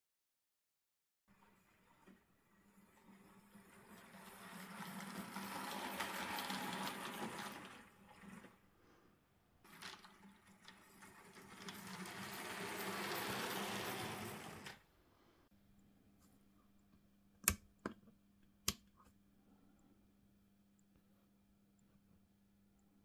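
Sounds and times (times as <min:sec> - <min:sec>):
model train motor whirring: 0:03.3 - 0:08.4, 0:09.7 - 0:14.8.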